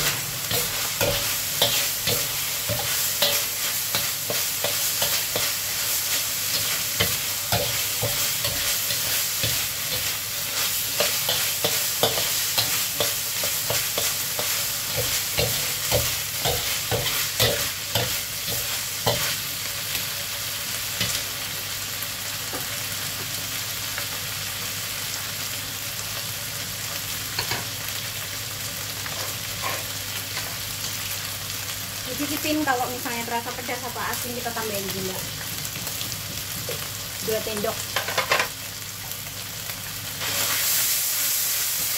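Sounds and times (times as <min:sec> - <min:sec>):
meat sizzling in a wok: 0:00.0 - 0:41.9
metal spatula scraping a wok: 0:29.1 - 0:30.0.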